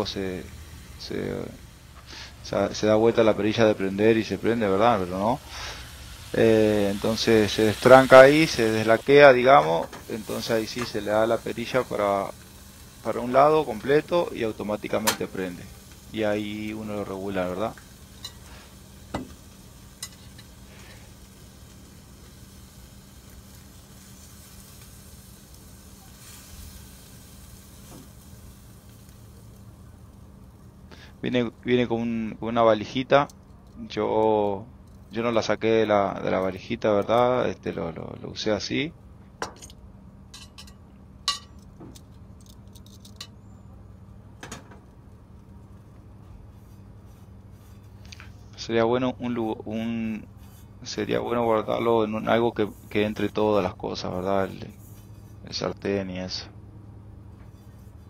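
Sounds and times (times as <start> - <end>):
steak sizzling in a skillet: 0.0 - 31.2
steady low hum: 0.0 - 58.0
frying pan and gas stove clinking: 15.0 - 15.4, 40.3 - 41.6.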